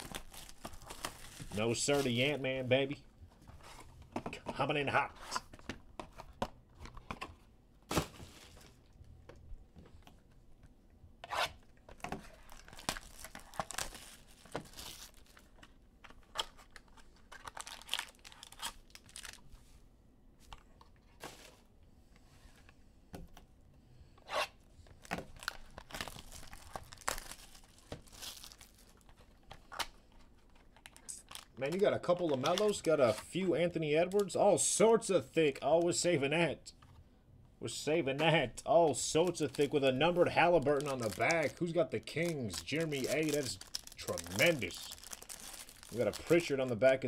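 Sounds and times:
wrappers tearing and crinkling: 0:00.0 - 0:02.4, 0:12.3 - 0:19.5, 0:25.0 - 0:33.2, 0:39.2 - 0:47.0.

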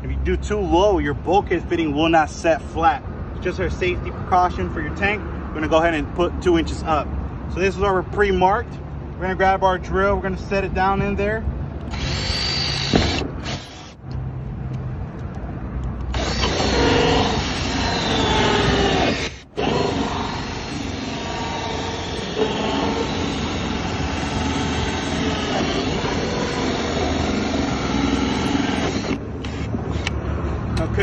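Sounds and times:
drill hole saw cutting plastic: 0:11.9 - 0:13.6, 0:16.1 - 0:30.1.

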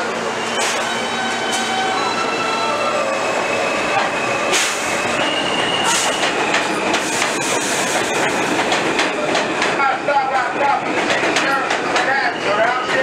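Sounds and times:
subway train motors whining: 0:00.0 - 0:13.0
wheels clacking over rail joints: 0:08.3 - 0:13.0.

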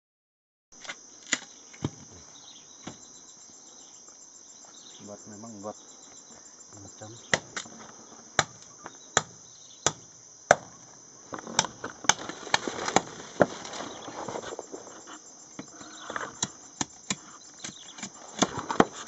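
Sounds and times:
machete chopping bamboo: 0:00.8 - 0:02.1, 0:07.3 - 0:07.7, 0:08.4 - 0:10.7, 0:11.5 - 0:13.6, 0:16.3 - 0:19.0
insects droning: 0:00.8 - 0:19.0.

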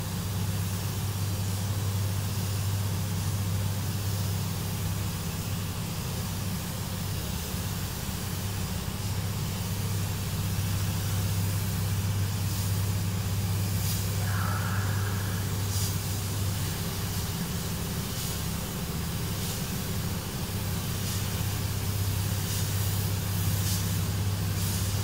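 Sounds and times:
ventilation fans humming: 0:00.0 - 0:25.0
spray gun hissing: 0:00.4 - 0:25.0.

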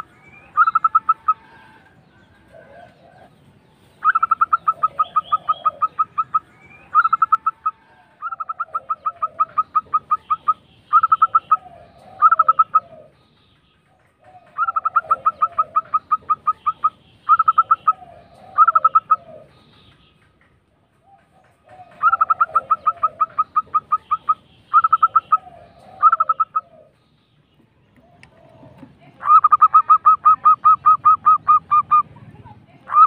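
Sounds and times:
dove rolling staccato coos: 0:00.0 - 0:27.3, 0:28.0 - 0:33.0
softer lower dove coos: 0:00.6 - 0:03.4, 0:04.0 - 0:13.2, 0:14.0 - 0:19.7, 0:21.0 - 0:27.0.

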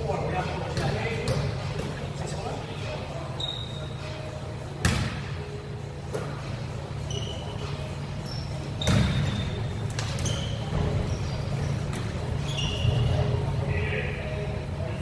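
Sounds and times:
sneakers squeaking: 0:00.4 - 0:15.0
basketball bouncing: 0:04.8 - 0:05.2, 0:08.8 - 0:10.9.

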